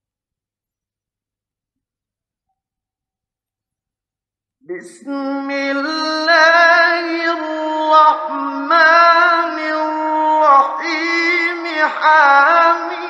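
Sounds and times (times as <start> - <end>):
man reciting melodically: 4.7 - 13.0.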